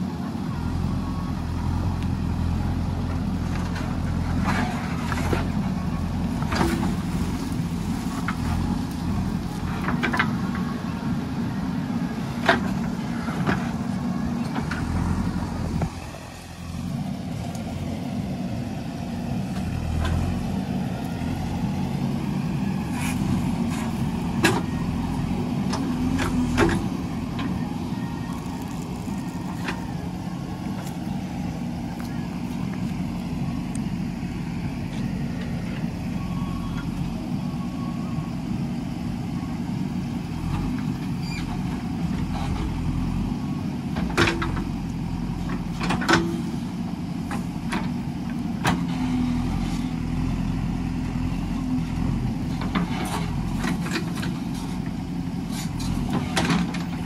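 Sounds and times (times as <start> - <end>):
diesel engine running: 0.0 - 57.0
digger scraping soil: 22.8 - 24.1.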